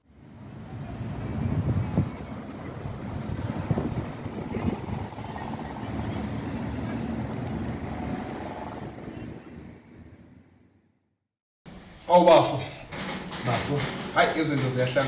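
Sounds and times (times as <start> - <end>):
road traffic rumble: 0.0 - 10.9.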